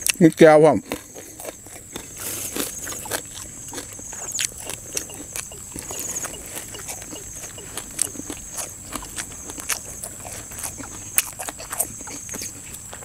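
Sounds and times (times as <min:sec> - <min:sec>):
wet chewing and mouth smacks: 0:00.0 - 0:13.0
high-pitched buzz: 0:04.4 - 0:09.1.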